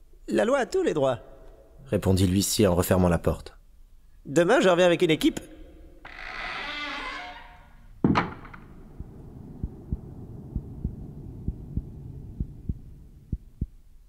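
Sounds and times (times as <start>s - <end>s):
door slamming: 6.1s - 9.0s
low hum: 8.3s - 14.0s
heartbeat sound effect: 9.0s - 13.9s.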